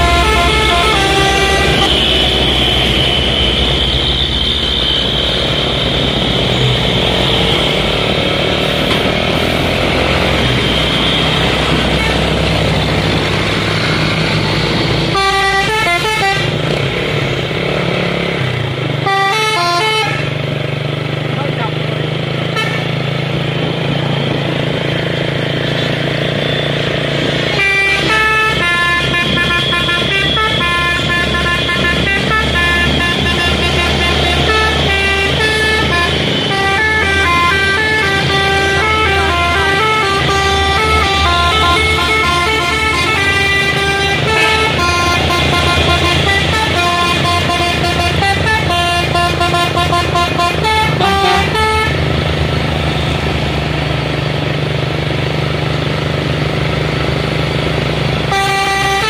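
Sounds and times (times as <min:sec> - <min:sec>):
musical bus air horn: 0:00.0 - 0:17.0, 0:18.5 - 0:20.5, 0:22.4 - 0:23.3, 0:25.9 - 0:52.2, 0:58.2 - 0:59.0
diesel engines humming: 0:00.0 - 0:59.0.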